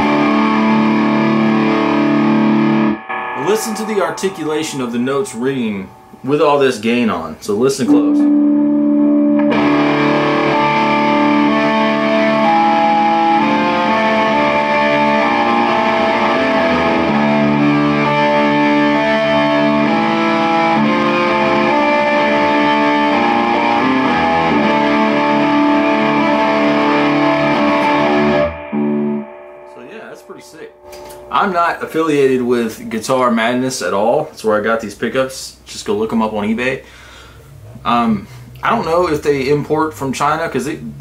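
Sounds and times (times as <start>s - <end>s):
distorted electric guitar notes: 0.0s - 32.7s.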